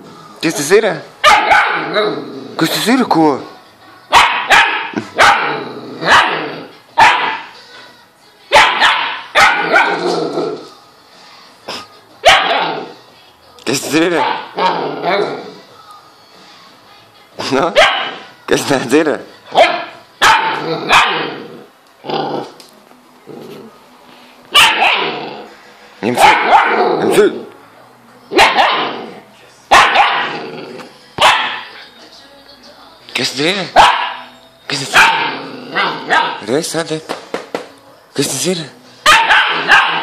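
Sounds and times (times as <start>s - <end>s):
puppy barking: 1.2s - 2.0s, 4.1s - 7.6s, 8.5s - 10.2s, 12.2s - 12.9s, 14.1s - 15.4s, 17.7s - 18.3s, 19.5s - 21.5s, 24.5s - 25.3s, 26.1s - 27.2s, 28.3s - 30.4s, 31.2s - 31.8s, 33.8s - 36.5s, 39.0s - 40.0s.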